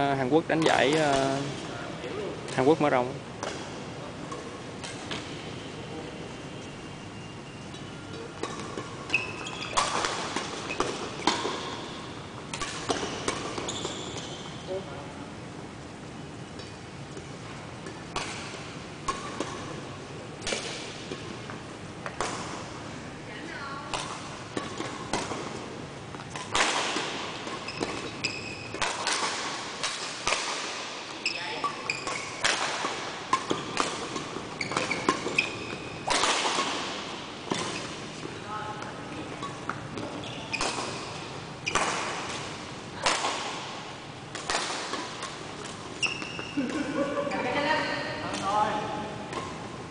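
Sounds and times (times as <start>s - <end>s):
racket hitting shuttlecock: 8.4s - 14.3s, 16.6s - 19.8s, 20.4s - 22.8s, 23.9s - 46.9s.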